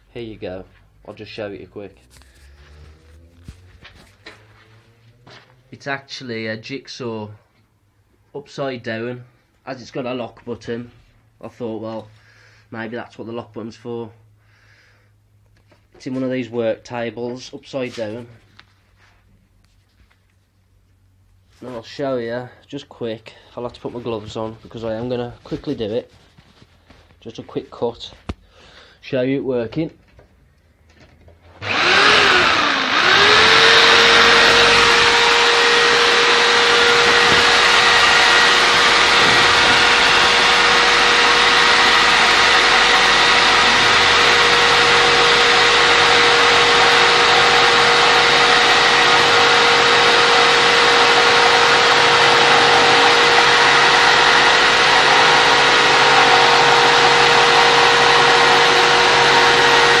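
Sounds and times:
jigsaw motor winding up: 0:31.5 - 1:00.0
saw blade cutting wood: 0:31.6 - 1:00.0.

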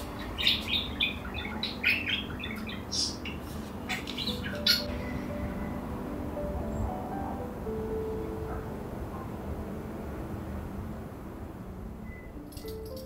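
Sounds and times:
birds squawking and chirping: 0:00.0 - 0:05.2
faint background music: 0:00.0 - 0:13.0.

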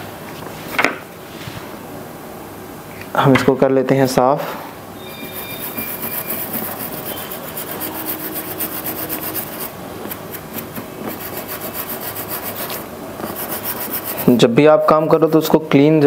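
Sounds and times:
brush scrubbing circuit board: 0:05.1 - 0:14.4.

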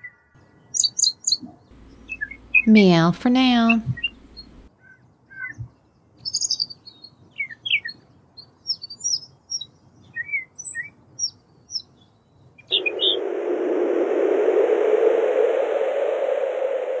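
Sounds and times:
small birds chirping: 0:00.4 - 0:13.2
steady even noise: 0:12.7 - 0:17.0.

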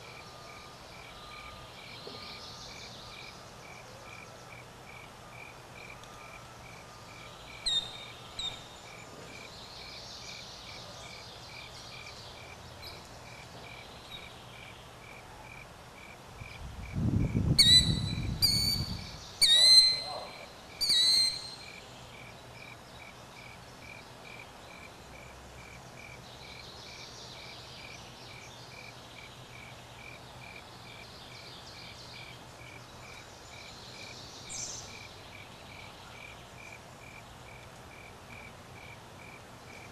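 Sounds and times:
bird calling: 0:07.5 - 0:08.7, 0:17.6 - 0:21.8.

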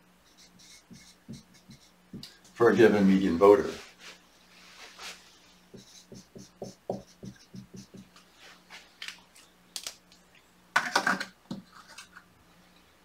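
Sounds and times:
marker scratching on whiteboard: 0:00.2 - 0:02.2, 0:05.7 - 0:08.1.

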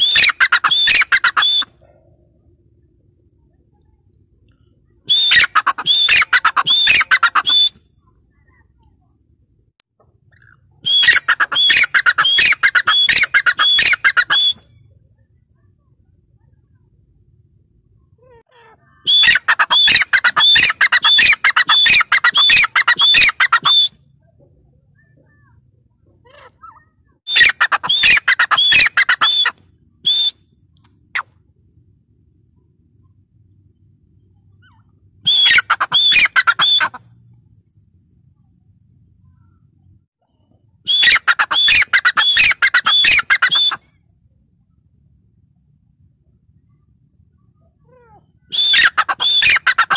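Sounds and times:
francolin shrill calls: 0:00.0 - 0:01.7, 0:05.1 - 0:07.7, 0:10.4 - 0:14.6, 0:18.8 - 0:23.9, 0:26.3 - 0:29.5, 0:34.6 - 0:37.0, 0:40.9 - 0:43.8, 0:47.8 - 0:49.9.

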